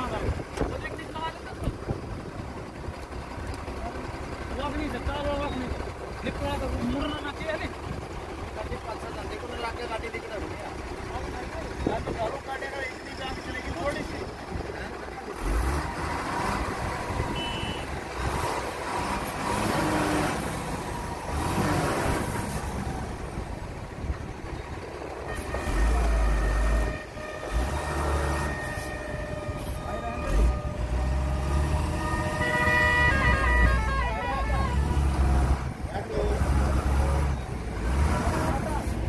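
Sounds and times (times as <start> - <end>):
heavy vehicle engines running: 0.0 - 39.0
truck horn: 17.1 - 18.5, 25.2 - 35.6.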